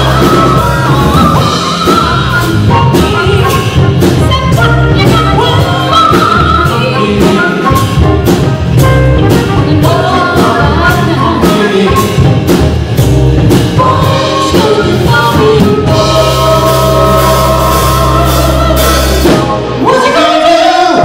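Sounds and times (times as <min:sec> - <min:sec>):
woman singing: 0:00.0 - 0:08.3, 0:09.1 - 0:12.4, 0:13.7 - 0:21.0
live soul funk band: 0:00.0 - 0:21.0.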